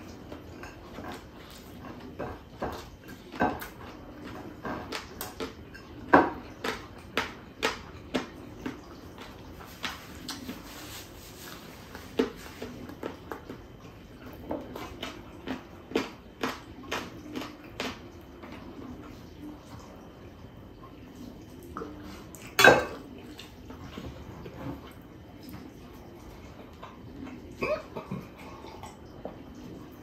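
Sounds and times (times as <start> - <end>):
tableware clinking: 22.6 - 23.0.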